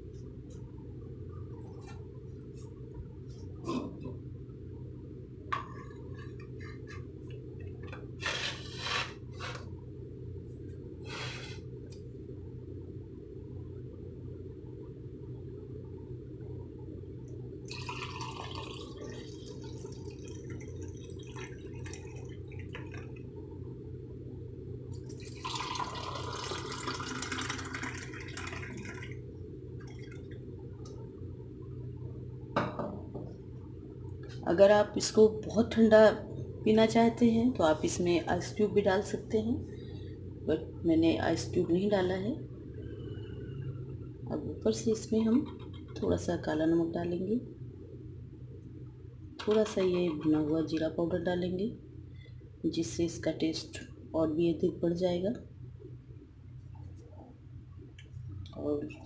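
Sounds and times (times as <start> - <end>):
steady low hum: 0.0 - 59.0
short scraping sounds: 8.2 - 9.7, 11.0 - 11.6
juice pouring into a glass: 17.7 - 23.2, 25.0 - 29.2
glasses set down on wooden counter: 32.6 - 33.3.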